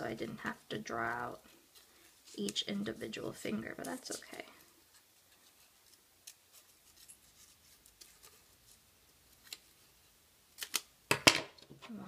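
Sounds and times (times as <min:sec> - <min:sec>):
scissors snipping paper: 0:05.9 - 0:08.5, 0:10.6 - 0:10.8.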